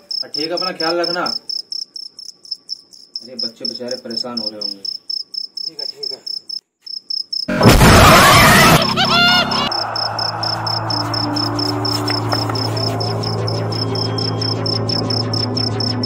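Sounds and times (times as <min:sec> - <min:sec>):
crickets chirping: 0:00.0 - 0:07.5, 0:09.6 - 0:16.0
dramatic crash sound effect: 0:07.5 - 0:13.8.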